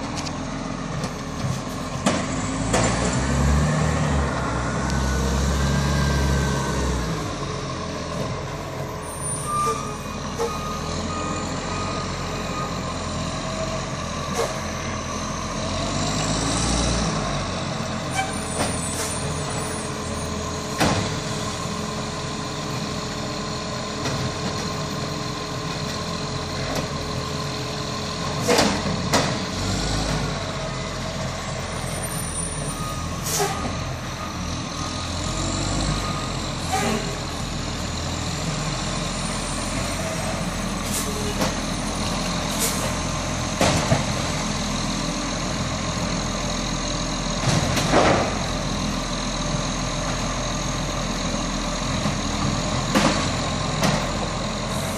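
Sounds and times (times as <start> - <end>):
garbage truck diesel engine running: 0.0 - 54.9
air brake hisses: 33.2 - 33.6, 40.8 - 41.2, 42.5 - 43.0.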